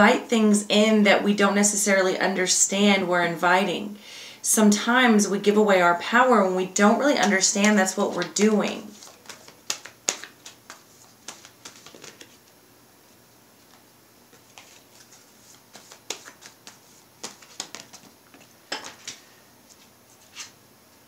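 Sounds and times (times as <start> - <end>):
cards being shuffled: 7.2 - 12.6, 13.6 - 20.6.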